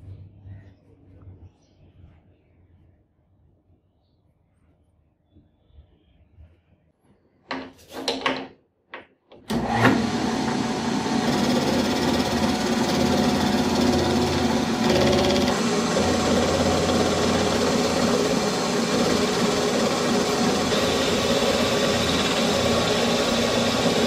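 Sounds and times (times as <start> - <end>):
metal lathe motor humming: 9.5 - 24.0.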